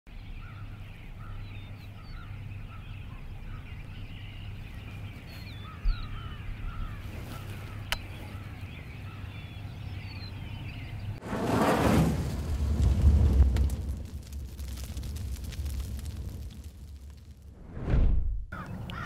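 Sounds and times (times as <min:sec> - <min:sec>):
repeated bird calls: 0:00.1 - 0:11.2, 0:18.5 - 0:19.0
low thump: 0:17.6 - 0:18.5.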